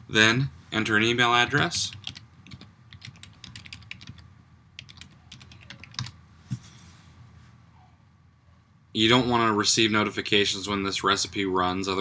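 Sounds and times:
typing on computer keyboard: 1.8s - 4.2s, 4.8s - 6.1s.

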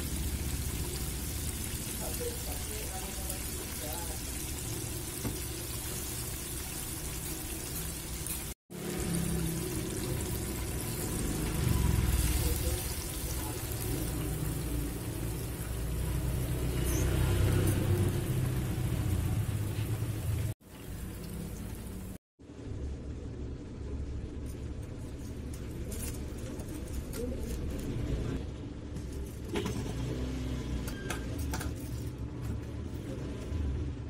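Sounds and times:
chicken deep-frying in oil: 0.0s - 22.2s.

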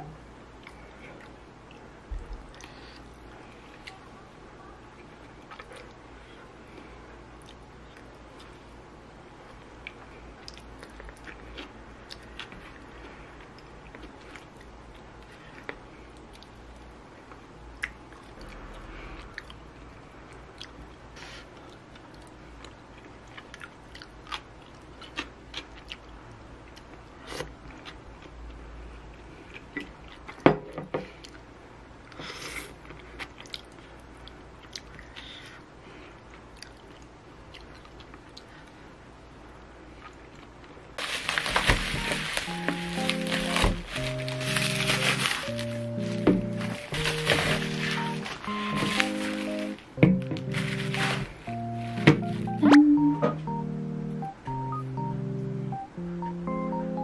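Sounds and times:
chewing: 5.0s - 6.0s, 9.5s - 19.6s, 20.3s - 30.4s, 32.8s - 35.6s, 36.2s - 38.8s.

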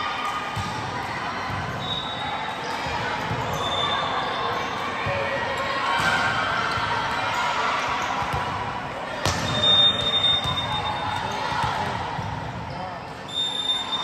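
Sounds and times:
crowd chatter and calls echoing: 0.0s - 14.0s
volleyball hit: 9.2s - 9.8s.

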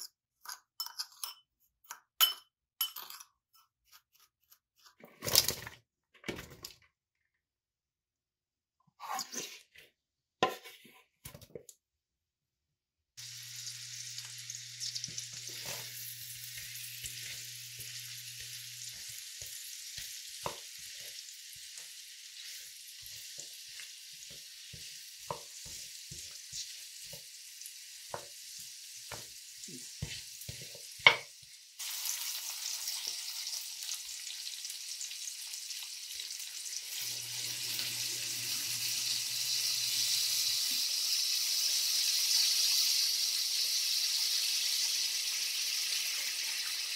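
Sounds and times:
vegetables sizzling in hot oil: 13.2s - 46.9s
wooden spoon stirring and knocking: 15.0s - 27.3s, 29.1s - 31.4s.

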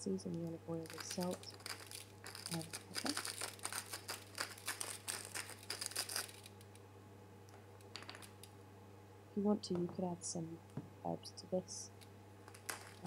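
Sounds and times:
salt and pepper grinder crackling: 0.8s - 6.5s.

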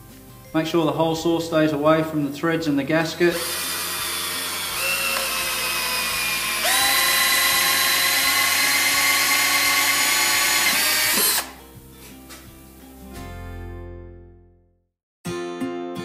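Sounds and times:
cordless drill motor whine: 3.3s - 11.5s.

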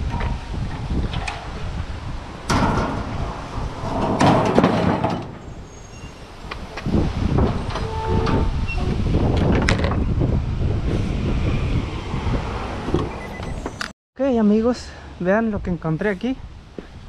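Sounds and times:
wind on microphone: 0.0s - 13.9s
metal clattering and scraping: 2.3s - 10.1s.

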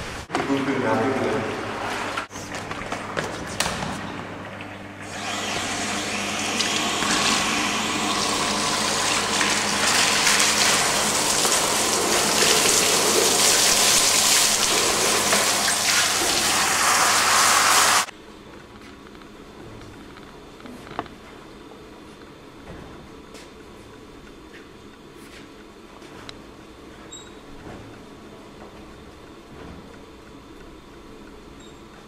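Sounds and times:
liquid gushing and splashing: 5.0s - 18.1s.

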